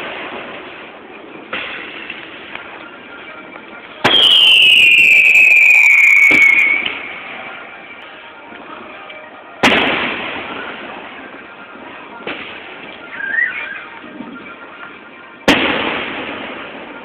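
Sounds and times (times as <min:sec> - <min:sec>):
firework whistle falling in pitch: 0:04.0 - 0:07.1, 0:13.1 - 0:14.0.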